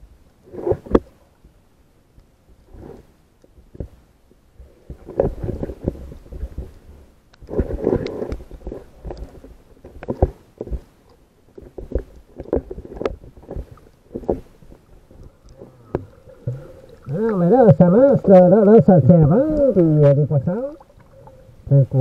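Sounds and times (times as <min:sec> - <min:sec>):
water sloshing and splashing: 0:04.6 - 0:18.5, 0:19.1 - 0:21.7.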